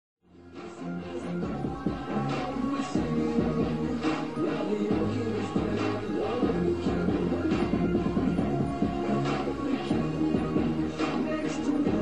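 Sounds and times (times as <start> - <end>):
song with held instrumental notes: 0.3 - 12.0.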